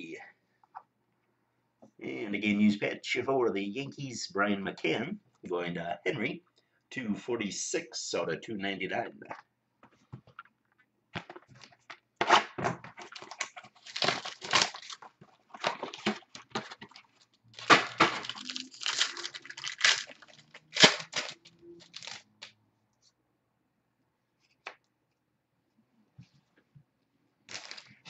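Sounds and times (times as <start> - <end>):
packaging crinkling and tearing: 12.9 - 22.5, 27.5 - 28.0.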